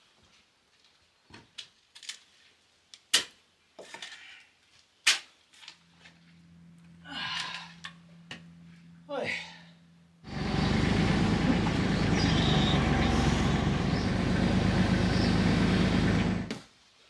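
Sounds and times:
steady low hum: 0:05.7 - 0:16.5.

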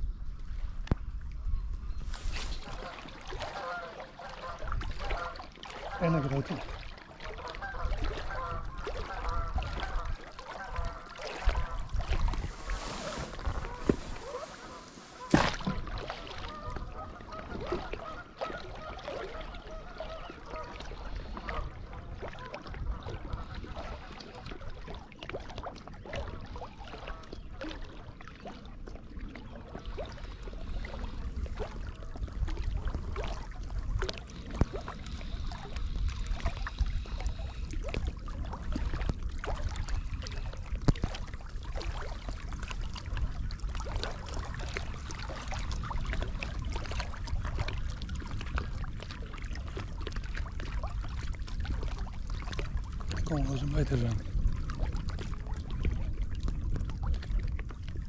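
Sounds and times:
water noise: 0:00.0 - 0:58.0
wind: 0:00.0 - 0:58.0.

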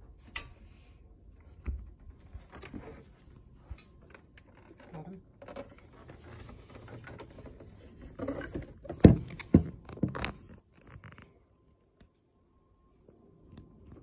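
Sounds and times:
plastic scraping and rustling: 0:02.2 - 0:11.4.

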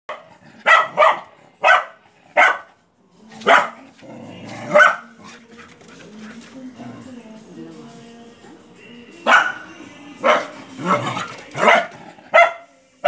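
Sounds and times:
dog barking angrily: 0:00.1 - 0:02.7, 0:03.4 - 0:03.8, 0:04.5 - 0:05.3, 0:09.3 - 0:09.6, 0:10.2 - 0:12.6
dog growling low: 0:03.9 - 0:05.6.

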